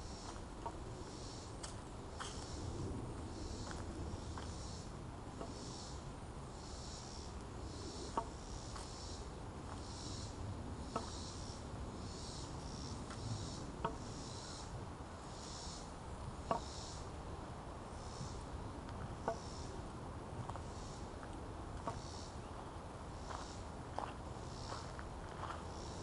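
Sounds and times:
insects calling in pulses: 0.0 - 26.0
walking stick tapping asphalt: 16.4 - 16.7, 18.9 - 19.5.

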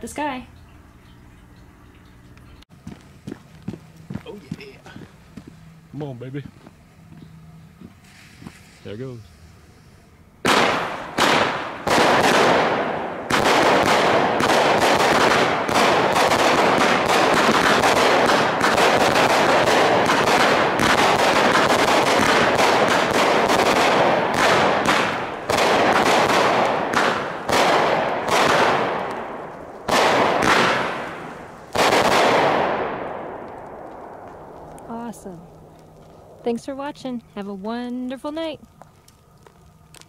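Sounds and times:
firework cakes shots and bangs: 10.4 - 34.9.

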